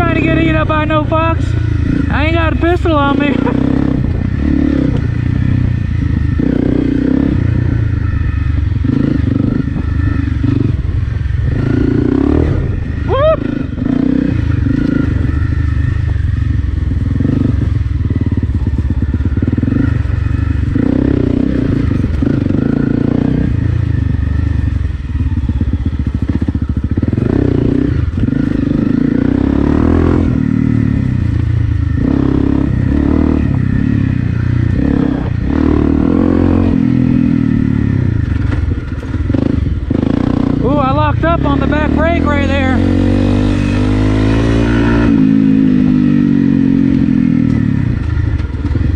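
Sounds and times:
motorcycle engine under throttle: 0:00.0 - 0:48.9
bike rattling over rough ground: 0:14.4 - 0:29.2, 0:38.1 - 0:40.4, 0:47.3 - 0:48.9.

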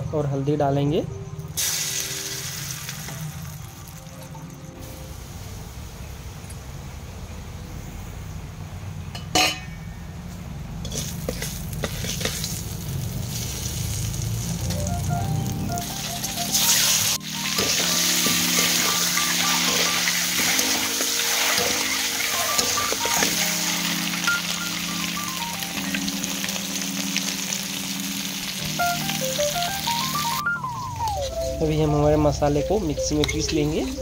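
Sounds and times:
hot oil sizzling in a wok: 0:01.6 - 0:06.7, 0:10.8 - 0:30.4
spatula stirring: 0:10.8 - 0:12.6.

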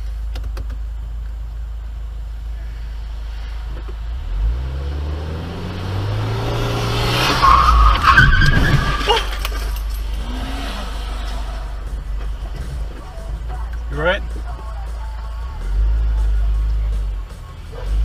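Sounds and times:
car engine accelerating: 0:00.0 - 0:18.0
tires squealing: 0:02.6 - 0:14.2.

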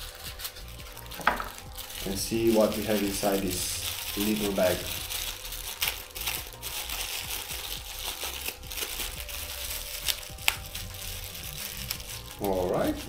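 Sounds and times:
sharp crackles: 0:00.0 - 0:13.0
wrapping crinkling and rustling: 0:00.0 - 0:13.0.

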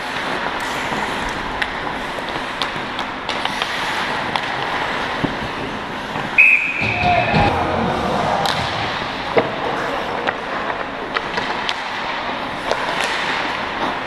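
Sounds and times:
hockey sticks and puck clacking: 0:00.0 - 0:07.5, 0:10.2 - 0:14.0
skates scraping ice: 0:00.0 - 0:14.0
referee's whistle: 0:06.4 - 0:07.4.

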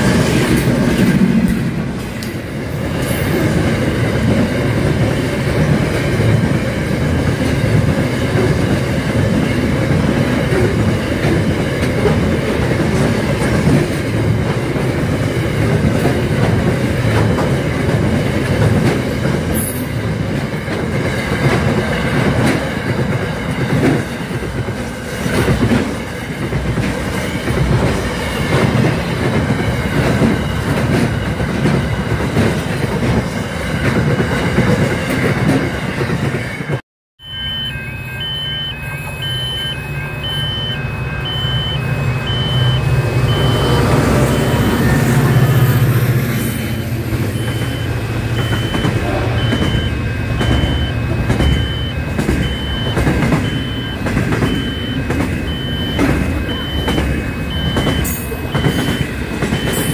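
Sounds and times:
train wheels clacking over rail joints: 0:00.0 - 0:36.8, 0:43.3 - 0:59.9
two-tone electronic beeping: 0:37.2 - 0:45.3, 0:46.6 - 0:59.9
wheel squeal: 0:37.3 - 0:45.5, 0:46.3 - 0:59.9.

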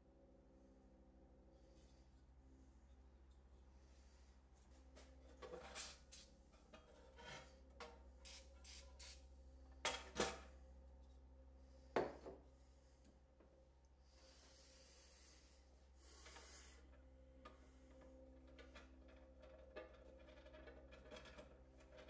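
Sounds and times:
metal scale scraping and clicking: 0:05.3 - 0:08.8.

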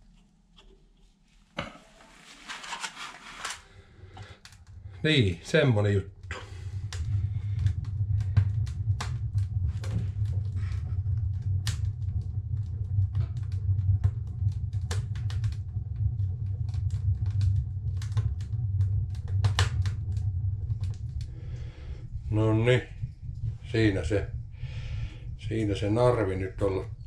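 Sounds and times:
low fire rumble: 0:00.8 - 0:27.0
wood fire crackling and popping: 0:01.6 - 0:27.0.

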